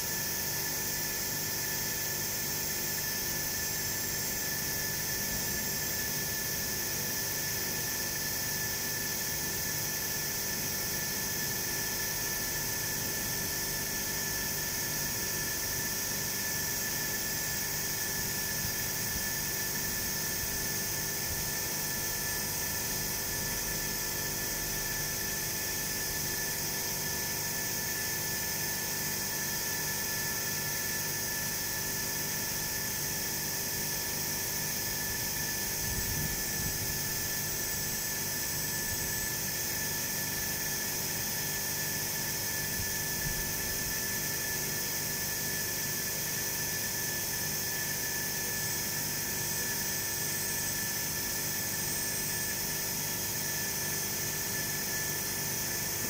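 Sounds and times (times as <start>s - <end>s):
machine high-pitched whine: 0.0s - 56.0s.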